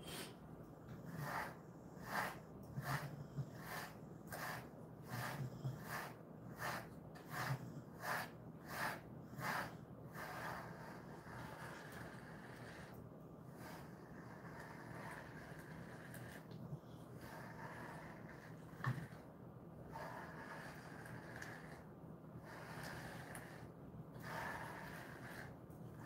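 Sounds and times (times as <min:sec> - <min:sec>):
brush swishing through dog fur: 0:01.1 - 0:11.6.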